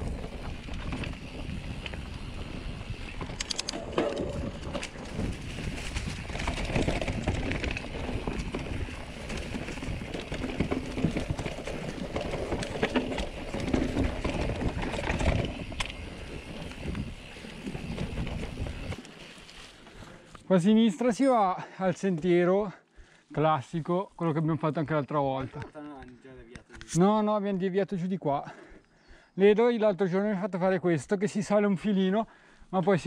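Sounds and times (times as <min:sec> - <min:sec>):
wind rumbling on microphone: 0:00.0 - 0:19.0
bike rattling over rocks: 0:00.0 - 0:20.1
bike tyres on dirt and leaves: 0:00.0 - 0:22.4.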